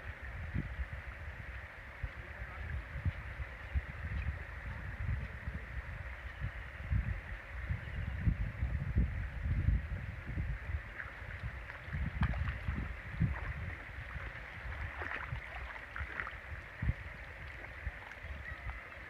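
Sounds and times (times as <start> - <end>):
water sloshing: 10.9 - 19.0.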